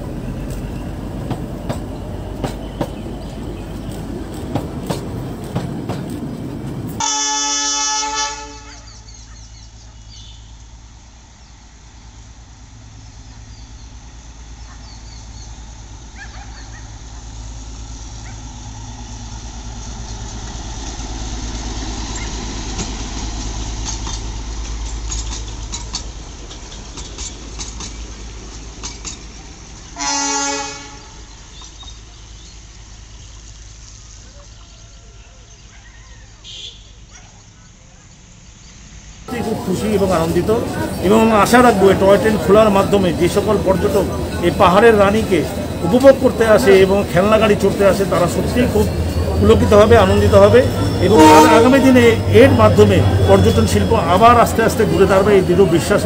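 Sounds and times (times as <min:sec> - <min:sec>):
diesel locomotive engine drone: 0:00.0 - 0:56.0
train horn blasts: 0:07.0 - 0:09.1, 0:30.0 - 0:31.3, 0:50.1 - 0:55.0.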